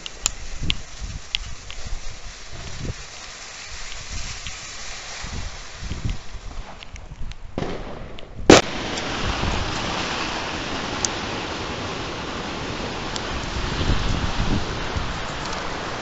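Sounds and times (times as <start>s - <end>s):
distant fireworks crackling: 0.0s - 16.0s
steady hiss: 0.0s - 16.0s
firecracker bang: 7.5s - 15.0s.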